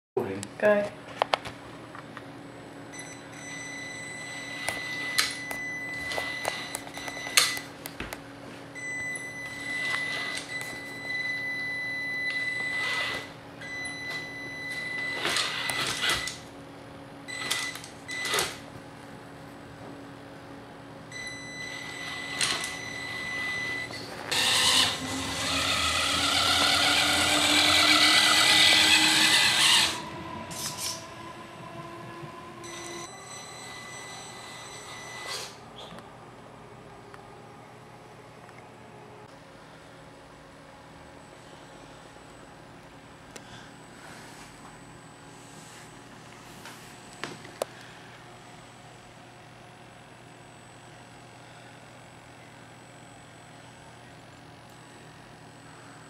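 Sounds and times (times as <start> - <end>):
electric motor whining: 12.6 - 13.4, 21.9 - 33.1.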